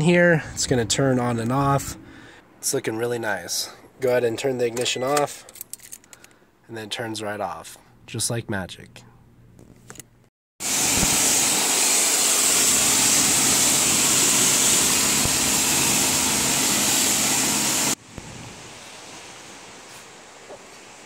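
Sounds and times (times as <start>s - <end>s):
high-pressure spray hissing: 10.6s - 18.0s.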